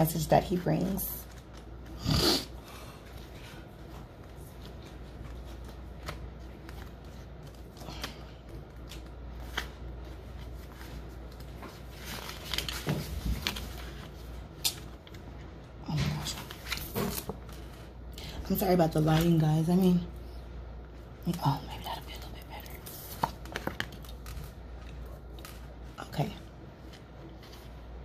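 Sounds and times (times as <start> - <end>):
faint low hum: 0.0 - 28.0
stiff paper rustling: 3.0 - 14.6.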